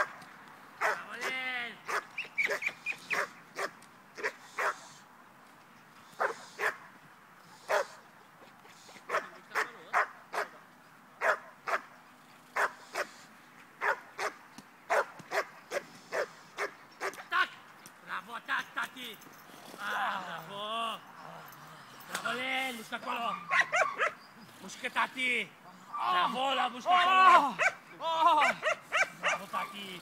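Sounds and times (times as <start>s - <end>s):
dog barking: 0.8s - 1.3s, 1.9s - 4.8s, 6.2s - 6.8s, 7.7s - 8.0s, 9.1s - 10.6s, 11.2s - 11.9s, 12.6s - 13.1s, 13.8s - 17.2s, 23.2s - 24.2s, 27.6s - 27.8s, 28.4s - 29.5s.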